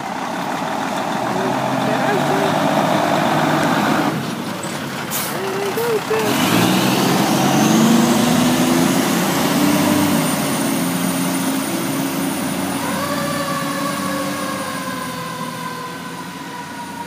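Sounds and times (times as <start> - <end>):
diesel engine pulling away: 0.0 - 17.0
siren winding up and down: 12.6 - 17.0.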